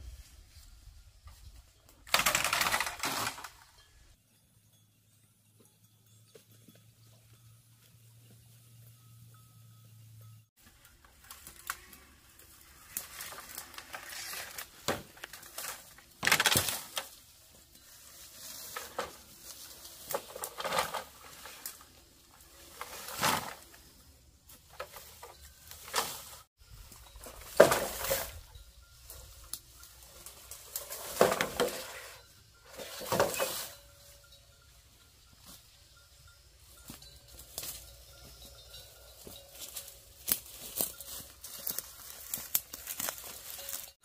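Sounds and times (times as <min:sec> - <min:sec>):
scraping and rustling handling noises: 0:10.6 - 0:34.2, 0:36.8 - 0:44.0.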